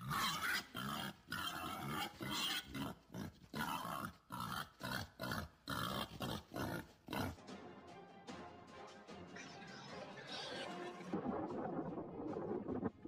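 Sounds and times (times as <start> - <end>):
pig squealing in distress: 0.0 - 7.4.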